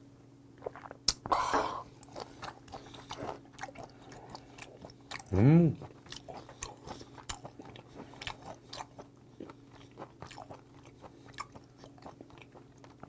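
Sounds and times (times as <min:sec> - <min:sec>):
person chewing: 0:00.6 - 0:13.0.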